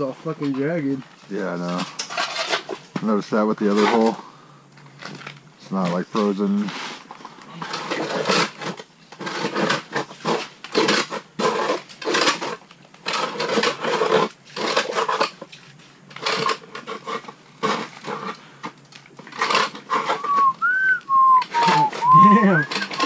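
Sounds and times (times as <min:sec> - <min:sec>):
hand tool chipping ice: 0:07.6 - 0:15.6, 0:16.2 - 0:18.4, 0:19.3 - 0:23.0.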